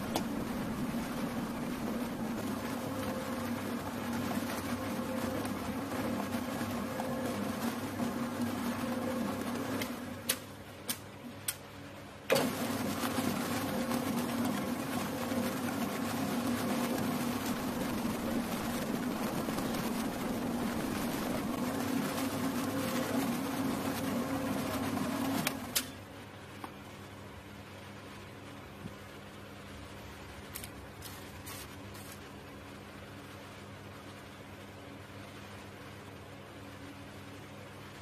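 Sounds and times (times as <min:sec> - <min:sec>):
mixer whisk running: 0:00.0 - 0:10.4, 0:12.3 - 0:25.8
mixer starting with a jolt: 0:12.3 - 0:25.9.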